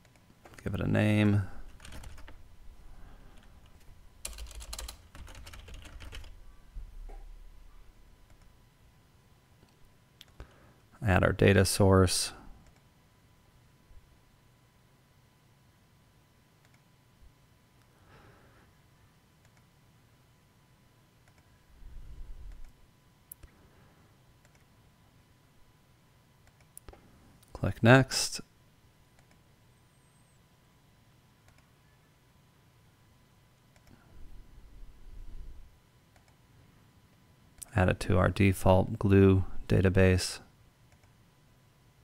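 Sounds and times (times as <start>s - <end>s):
typing on computer keyboard: 1.7s - 2.4s, 3.4s - 6.4s
computer mouse clicks: 8.3s - 8.5s, 16.6s - 16.9s, 19.4s - 19.7s, 21.2s - 21.5s, 22.5s - 23.5s, 24.4s - 24.7s, 26.4s - 27.0s, 29.2s - 29.4s, 31.4s - 31.7s, 33.7s - 34.0s, 36.1s - 36.4s, 40.9s - 41.2s.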